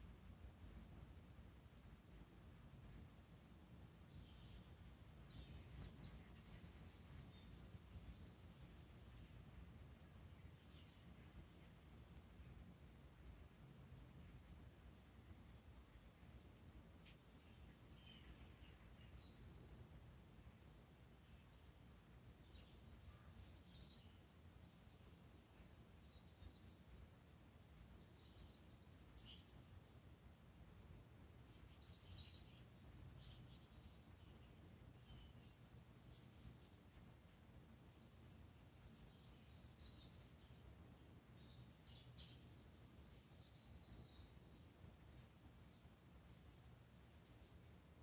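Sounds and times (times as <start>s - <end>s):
faint high-pitched bird chirps: 3.0s - 9.6s, 17.0s - 20.0s, 21.2s - 30.2s, 30.8s - 48.0s.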